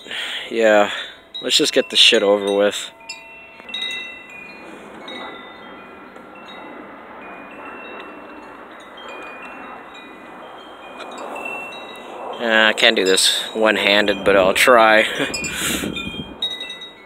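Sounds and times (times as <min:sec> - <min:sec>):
steady rushing hiss: 0:00.0 - 0:17.0
wind chimes ringing: 0:00.0 - 0:17.0.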